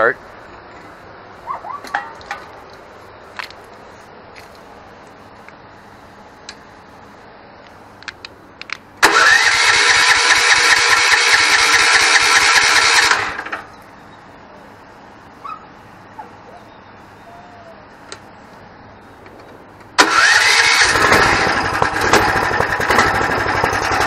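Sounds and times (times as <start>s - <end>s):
electric starter cranking engine: 9.0s - 13.6s, 20.0s - 24.0s.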